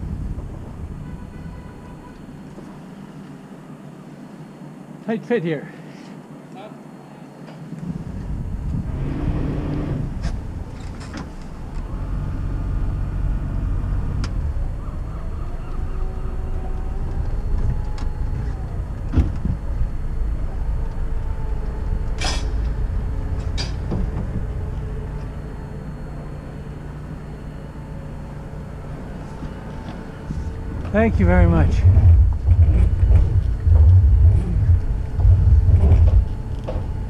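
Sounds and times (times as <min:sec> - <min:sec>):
boat engine running at low speed: 0:16.5 - 0:37.0.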